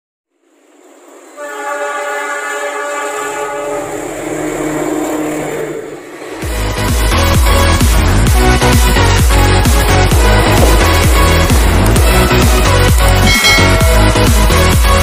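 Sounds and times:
locomotive chord horn blast: 0:01.3 - 0:06.8, 0:08.6 - 0:15.0
diesel engine low rumble: 0:03.5 - 0:15.0.

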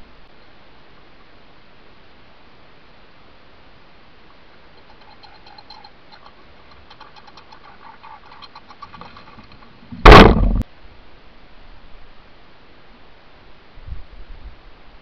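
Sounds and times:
squirrel feeding clicks: 0:04.8 - 0:09.6
loud thump with rumble: 0:10.0 - 0:10.6.

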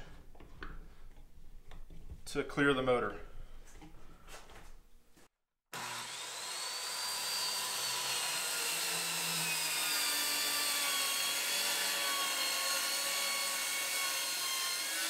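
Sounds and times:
circular saw cutting wood: 0:05.7 - 0:15.0.

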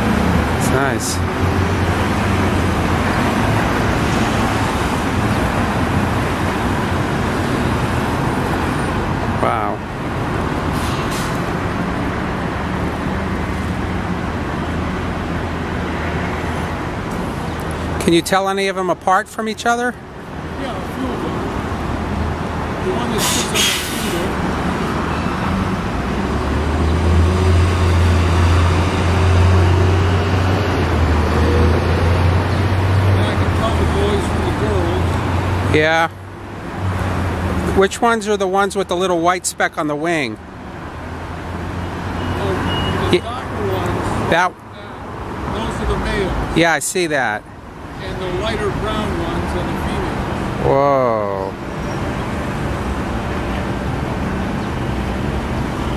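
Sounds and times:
road traffic noise: 0:00.0 - 0:55.9
heavy vehicle engine rumble: 0:20.2 - 0:35.7.

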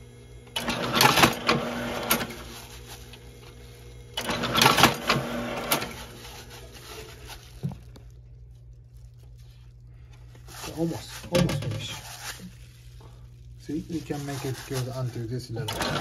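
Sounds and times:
machine motor hum: 0:00.0 - 0:08.1, 0:15.3 - 0:16.0.

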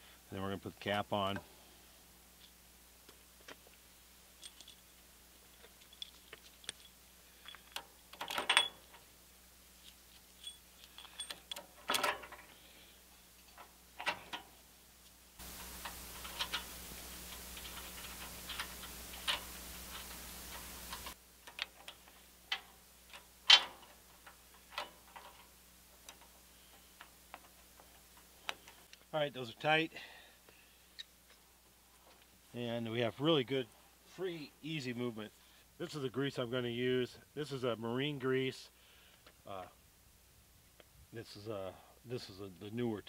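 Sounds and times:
steady hiss: 0:00.0 - 0:43.0
metal clicks and clinks: 0:04.4 - 0:04.9, 0:05.5 - 0:09.0, 0:09.8 - 0:12.5.

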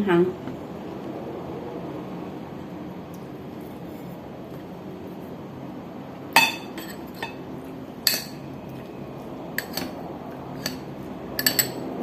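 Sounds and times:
metal spoon clinking on ceramic bowl: 0:06.4 - 0:07.4, 0:08.0 - 0:08.4, 0:09.6 - 0:10.0, 0:10.6 - 0:12.0.

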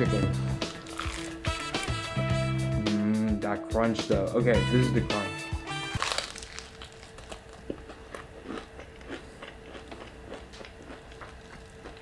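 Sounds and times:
biting crispy fried chicken: 0:00.6 - 0:02.0, 0:06.0 - 0:12.0
crunchy chewing: 0:00.6 - 0:02.0, 0:06.0 - 0:12.0.

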